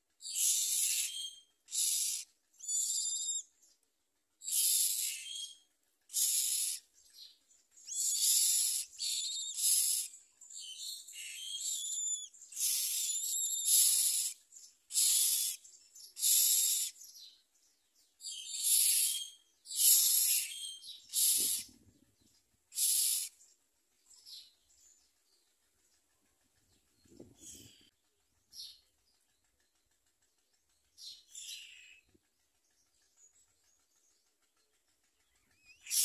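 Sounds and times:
nestlings hissing begging calls: 0:00.2 - 0:03.4, 0:04.4 - 0:06.9, 0:07.8 - 0:17.0, 0:18.2 - 0:21.7, 0:22.7 - 0:23.4, 0:35.8 - 0:36.0.

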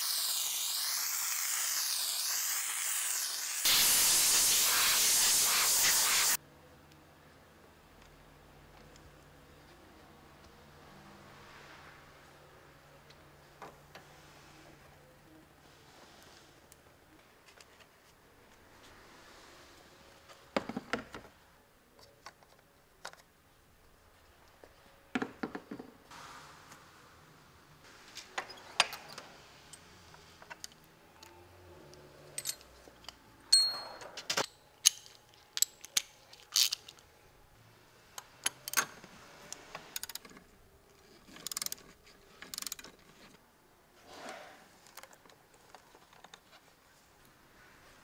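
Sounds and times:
metal sockets clinking: 0:32.3 - 0:37.0
ratchet clicking: 0:40.0 - 0:40.3, 0:41.3 - 0:41.8, 0:42.4 - 0:42.9.

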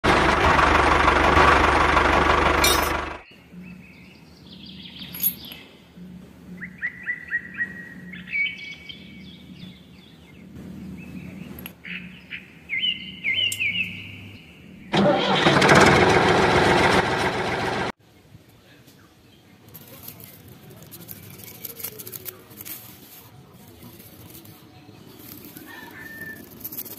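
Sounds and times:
vehicle engine running: 0:00.0 - 0:03.7, 0:14.9 - 0:18.0
birds chirping: 0:03.2 - 0:15.0.

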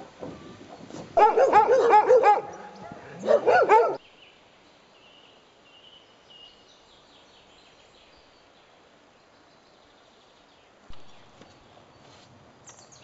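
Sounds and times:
dogs barking: 0:01.2 - 0:04.0.

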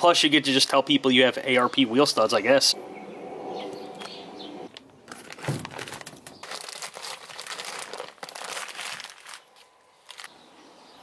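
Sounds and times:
plastic bag crinkling: 0:04.8 - 0:10.3.

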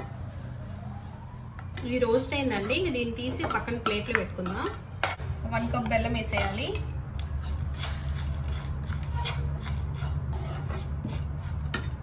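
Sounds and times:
spoon scraping a frying pan: 0:02.3 - 0:05.3, 0:06.2 - 0:12.0.

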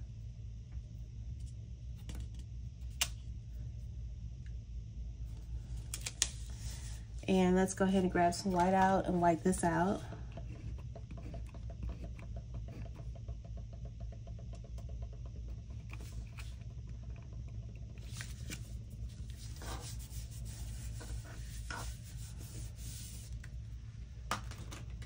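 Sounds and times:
correction tape rubbing on paper: 0:18.0 - 0:23.5.

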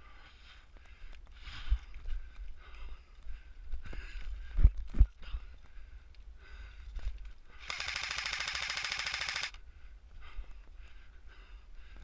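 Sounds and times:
airsoft rifle burst firing: 0:07.6 - 0:09.6.

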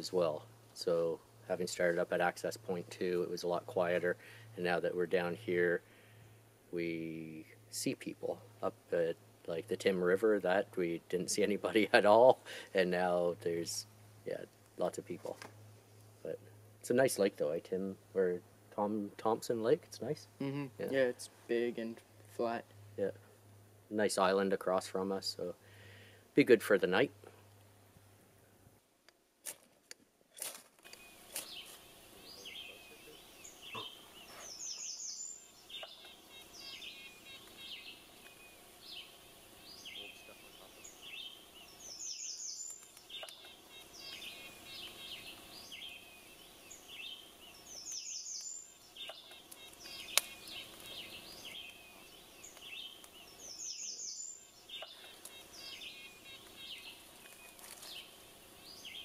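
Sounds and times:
birds chirping: 0:30.9 - 0:59.0
sharp clicks: 0:42.7 - 0:43.6.

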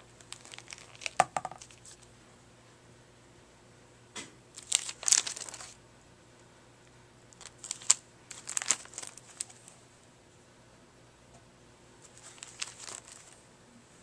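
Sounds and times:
plastic sleeves crinkling: 0:00.0 - 0:02.1, 0:04.5 - 0:05.8, 0:07.3 - 0:09.8, 0:12.0 - 0:13.4.

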